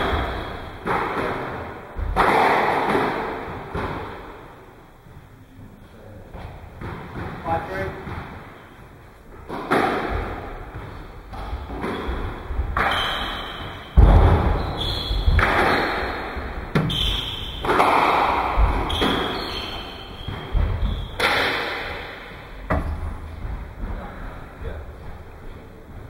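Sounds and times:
shoes squeaking on floor: 0:00.0 - 0:00.9, 0:10.7 - 0:21.5
squash ball thuds: 0:00.0 - 0:04.4, 0:09.4 - 0:25.2.

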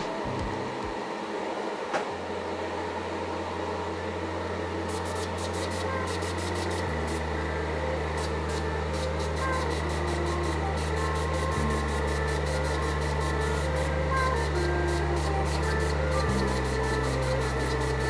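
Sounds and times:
low hum: 0:00.0 - 0:01.6, 0:02.2 - 0:18.0
ventilation fan whir: 0:00.0 - 0:18.0.

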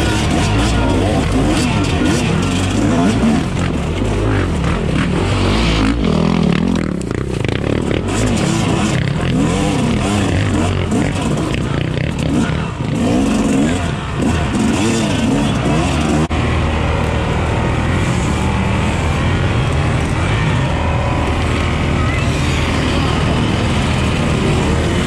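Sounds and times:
dirt bike engine running steadily: 0:00.0 - 0:25.0
dirt bike engines revving: 0:00.0 - 0:25.0.

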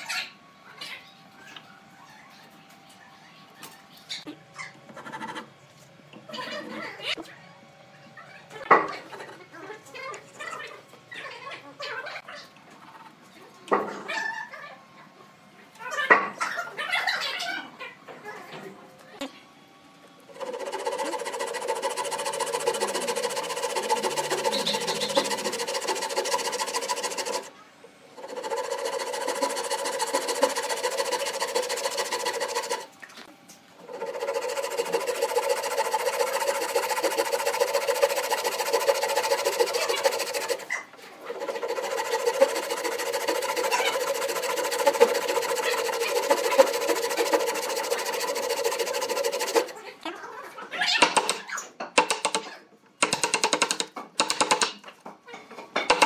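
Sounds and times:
hand saw cutting wood: 0:20.3 - 0:27.5, 0:28.2 - 0:32.9, 0:33.8 - 0:49.8.

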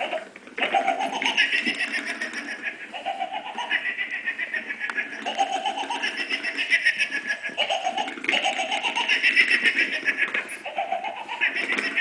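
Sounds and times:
electronic toy chattering: 0:00.0 - 0:12.0.

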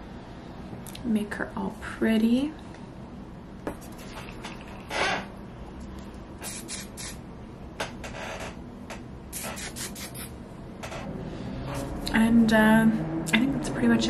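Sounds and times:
hairspray hissing bursts: 0:06.4 - 0:07.2, 0:09.4 - 0:10.3.

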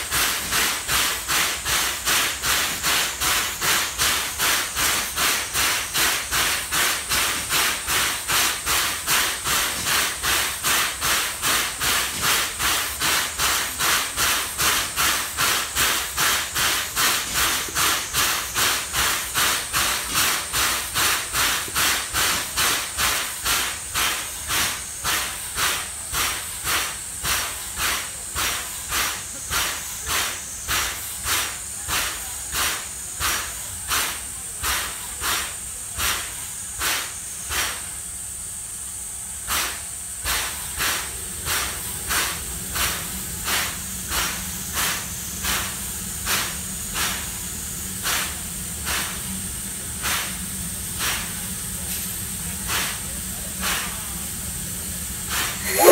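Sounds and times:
steam air compressor pumping: 0:00.0 - 0:55.9
steam hissing: 0:00.0 - 0:55.9.

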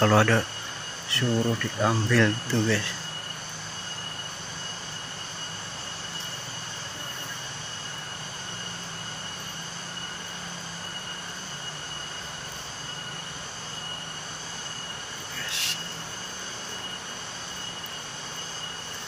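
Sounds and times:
bees buzzing: 0:00.0 - 0:19.0
thin high tone: 0:00.0 - 0:19.0.

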